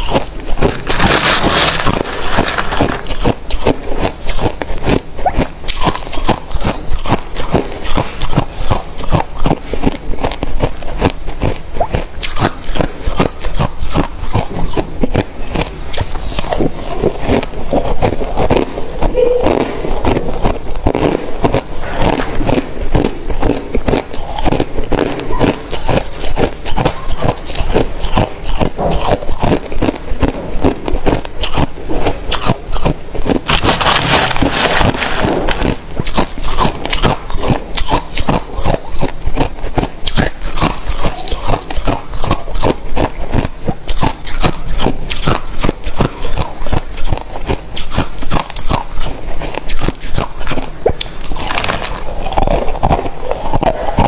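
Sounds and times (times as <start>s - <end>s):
crushed ice crunching: 0.0s - 3.6s, 33.4s - 37.3s.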